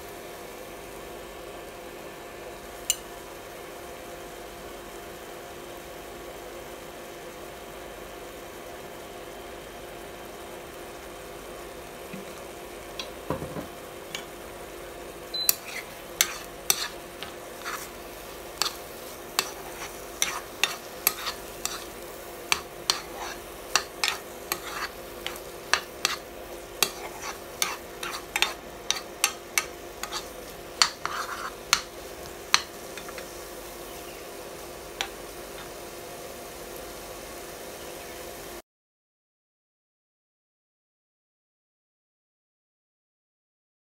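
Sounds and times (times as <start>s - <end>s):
food frying: 0.0s - 38.6s
spatula scraping frying pan: 14.0s - 14.4s, 15.4s - 33.4s.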